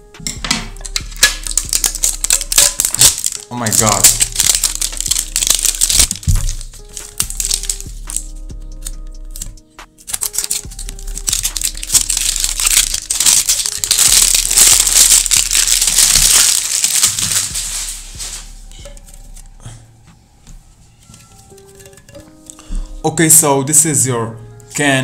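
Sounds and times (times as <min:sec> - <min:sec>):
plastic packaging crinkling and tearing: 0:00.8 - 0:08.4, 0:09.3 - 0:19.6.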